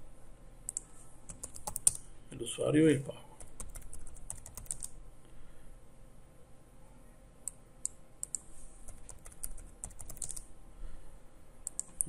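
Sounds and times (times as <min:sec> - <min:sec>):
keyboard keys clicking: 0:00.7 - 0:02.0, 0:03.4 - 0:04.9, 0:07.8 - 0:10.5, 0:11.6 - 0:12.0.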